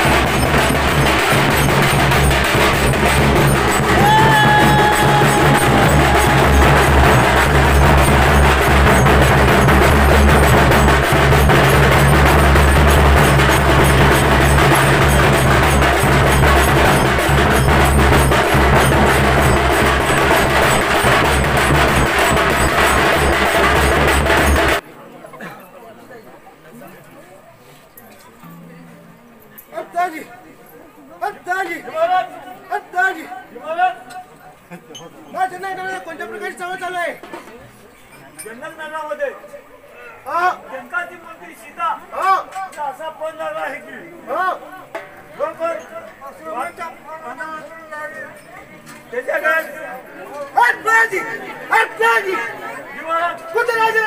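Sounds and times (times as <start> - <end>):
hand drums fast beat: 0.0 - 24.8.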